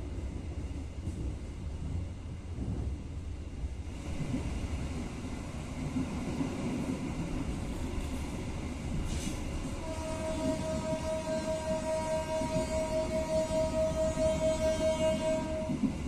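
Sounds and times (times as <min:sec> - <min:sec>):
train rumbling: 0:00.0 - 0:16.0.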